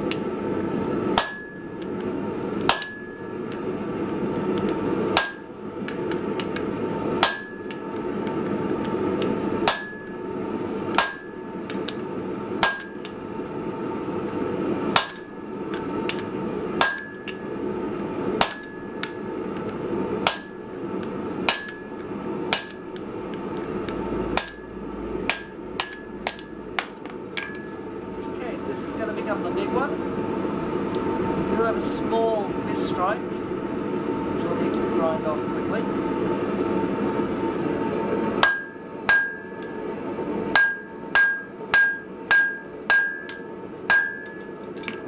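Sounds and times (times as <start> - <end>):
hammer striking steel on anvil: 1.1 - 1.8, 2.6 - 3.6, 5.1 - 7.9, 9.6 - 10.2, 10.9 - 12.0, 12.6 - 13.2, 14.9 - 16.2, 16.8 - 17.4, 18.4 - 19.3, 20.2 - 20.6, 21.4 - 22.8, 23.5 - 27.8, 38.4 - 39.8, 40.5 - 45.0.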